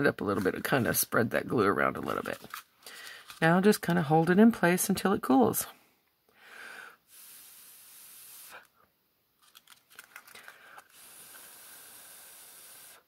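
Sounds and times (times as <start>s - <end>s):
paper rustling: 2.0s - 4.3s, 9.4s - 10.9s
faint hiss: 6.3s - 8.8s, 10.4s - 13.0s
paper clicks: 9.4s - 10.9s.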